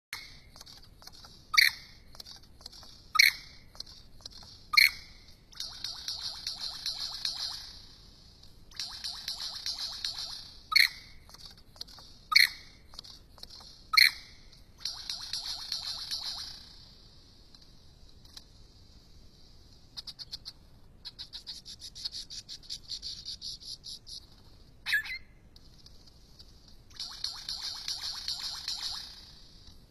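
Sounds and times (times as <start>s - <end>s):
loud sharp bird calls: 24.9s - 25.3s
scattered clicks: 25.5s - 29.9s.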